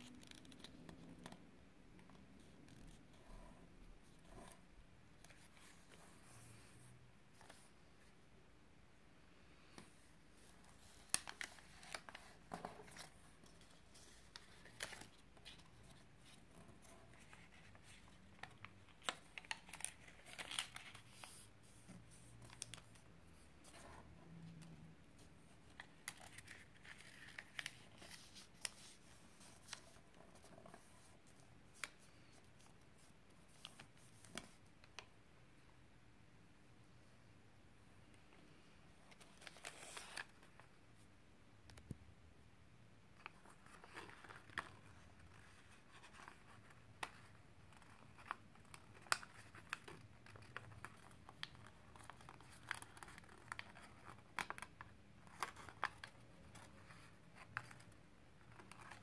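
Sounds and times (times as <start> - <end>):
paper crinkling and rustling: 10.4 - 24.8, 25.4 - 35.0, 39.0 - 40.7, 43.2 - 59.0.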